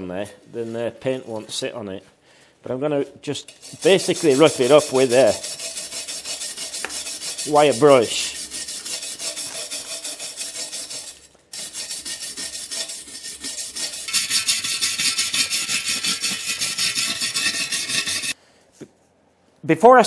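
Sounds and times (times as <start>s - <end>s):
wire brush scrubbing metal: 3.4s - 18.4s.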